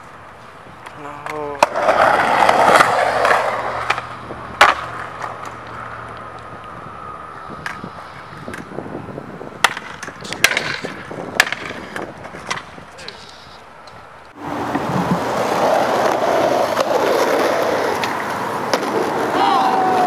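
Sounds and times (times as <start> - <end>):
skateboard wheels rolling on concrete: 0.0 - 20.0
skateboard clacks: 0.8 - 6.7, 7.4 - 7.9, 9.6 - 13.4, 14.3 - 20.0.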